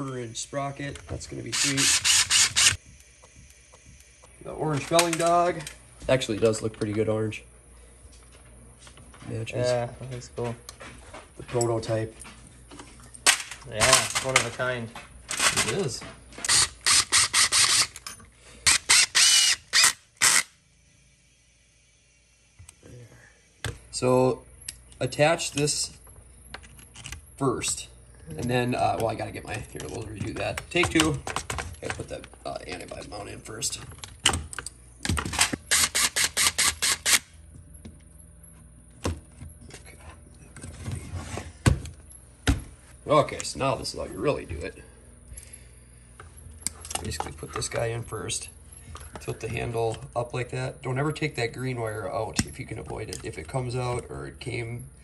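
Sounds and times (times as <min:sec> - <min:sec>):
ratchet bursts: 0:01.5 - 0:02.8, 0:16.4 - 0:18.0, 0:18.6 - 0:20.6, 0:35.3 - 0:37.3.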